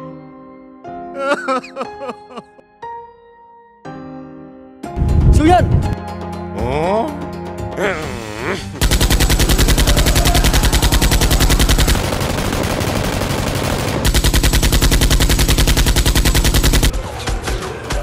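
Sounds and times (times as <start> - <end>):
automatic machine gun fire: 8.8 - 16.9.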